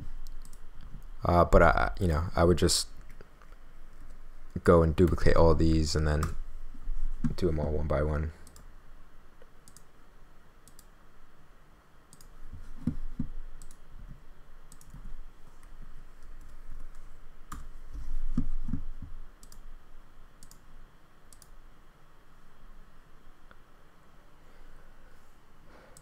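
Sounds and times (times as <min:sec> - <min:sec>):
computer mouse clicking: 0:00.2 - 0:01.1, 0:08.4 - 0:08.7, 0:09.6 - 0:09.9, 0:10.6 - 0:10.9, 0:12.1 - 0:13.8, 0:14.7 - 0:17.7, 0:19.4 - 0:19.6, 0:20.4 - 0:20.6, 0:21.3 - 0:21.6.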